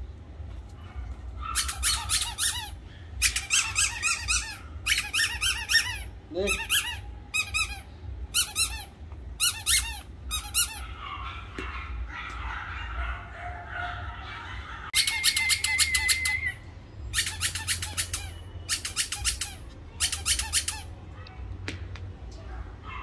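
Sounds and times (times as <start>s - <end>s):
rapid high-pitched squeaks: 1.5s - 7.8s, 17.1s - 20.9s.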